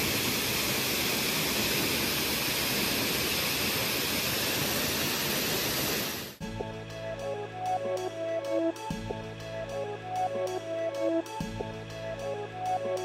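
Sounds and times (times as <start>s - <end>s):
waterfall pouring into pool: 0.0s - 6.4s
music with drums: 6.4s - 13.0s.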